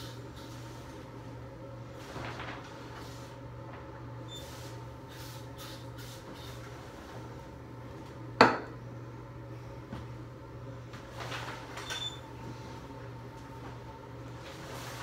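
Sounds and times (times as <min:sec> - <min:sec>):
shower curtain rustling: 0:00.0 - 0:07.2, 0:11.0 - 0:12.8, 0:13.6 - 0:15.0
steady low hum: 0:00.0 - 0:15.0.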